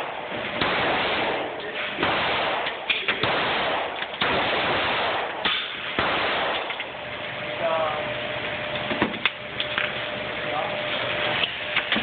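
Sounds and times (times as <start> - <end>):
handgun shots echoing indoors: 0.0 - 6.9.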